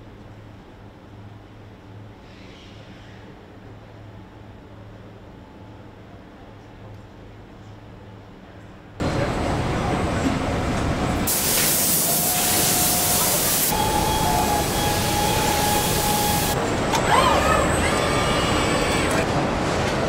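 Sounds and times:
production line noise: 0:09.0 - 0:19.3
paint spray nozzle hissing: 0:11.3 - 0:13.7
steady whine: 0:12.3 - 0:16.9.

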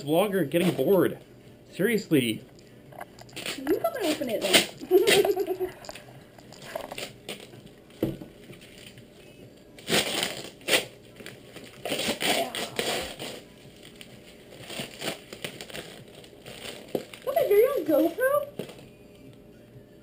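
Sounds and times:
wrapping paper tearing and crumpling: 0:03.3 - 0:05.5, 0:06.7 - 0:07.5, 0:09.8 - 0:18.8.

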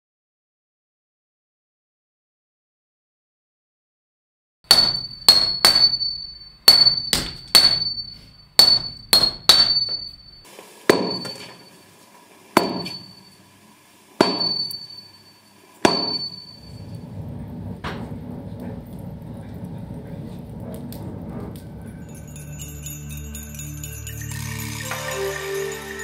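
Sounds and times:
hammer striking metal: 0:04.7 - 0:11.7, 0:12.6 - 0:13.4, 0:14.2 - 0:16.7.

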